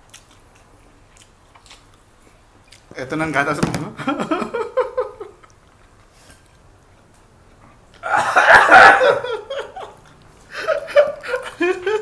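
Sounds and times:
men laughing loudly: 4.0 - 5.4, 8.0 - 12.0.

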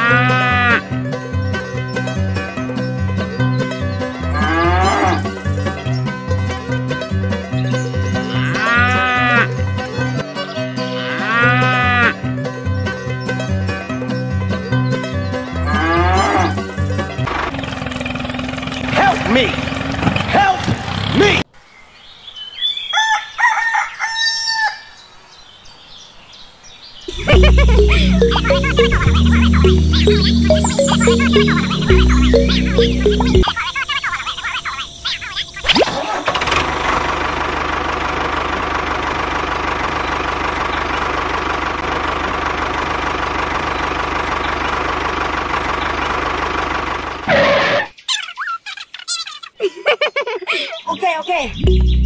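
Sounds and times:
music: 0.2 - 8.5, 9.5 - 17.2, 27.1 - 33.5, 51.7 - 52.0
tractor engine chugging: 17.3 - 21.0, 36.3 - 47.3
rooster crowing: 22.9 - 25.0.

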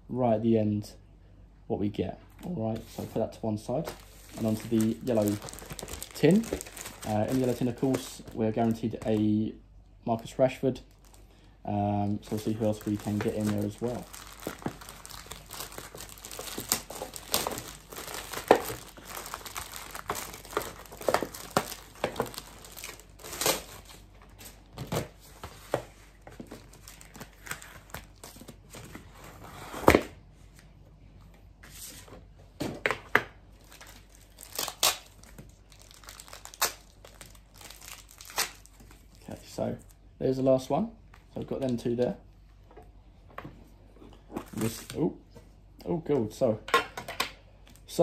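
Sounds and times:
plastic packaging crinkling and tearing: 3.9 - 9.2, 12.1 - 25.1, 26.4 - 28.9, 33.6 - 39.9.

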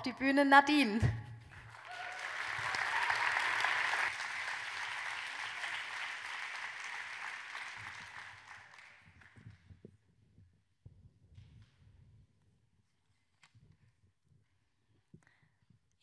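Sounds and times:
large audience applauding: 1.5 - 9.6.

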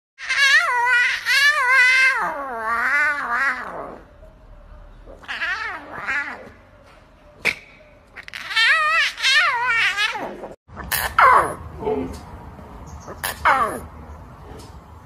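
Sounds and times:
lion cub mewing cries: 0.2 - 4.1, 5.1 - 6.6, 8.1 - 11.7, 13.0 - 13.9.

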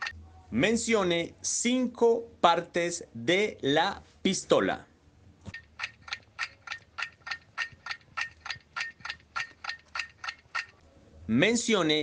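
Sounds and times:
clock ticking: 5.5 - 10.8.

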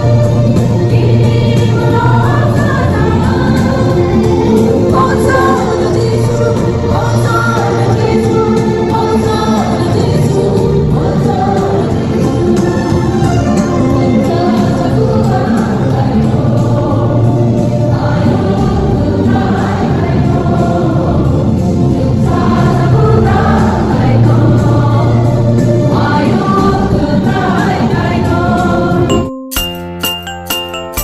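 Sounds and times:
choir singing a hymn: 0.0 - 29.1
steady bass accompaniment: 0.0 - 31.0.

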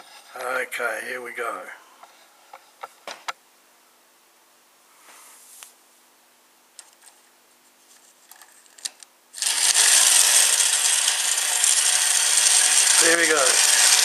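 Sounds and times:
faint clicks of handling: 7.9 - 9.1
toy train motor whirring: 9.4 - 14.0.

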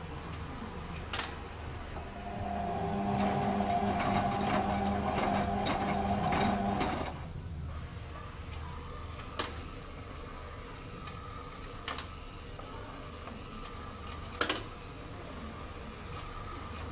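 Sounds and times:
faint steady hum: 0.0 - 16.9
washing machine motor whining: 1.9 - 7.4.

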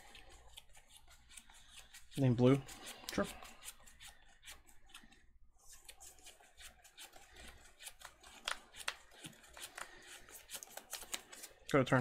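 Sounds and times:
cards being shuffled: 5.7 - 12.0.

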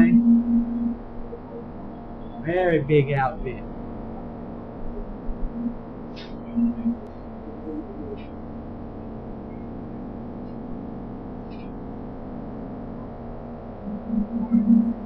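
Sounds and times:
low bursts: 0.0 - 8.8
engine room hum: 0.0 - 15.0.

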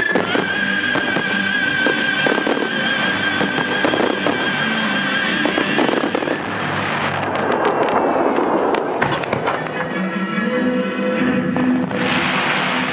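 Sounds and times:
music holding long note: 0.0 - 8.6
firework shells bursting and crackling: 0.0 - 10.1, 11.8 - 12.9.

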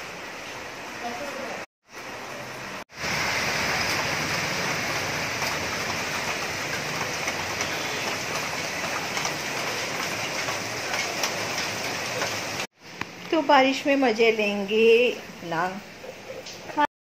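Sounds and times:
heavy rain hissing: 0.0 - 13.0
raindrops ticking: 3.8 - 12.7.

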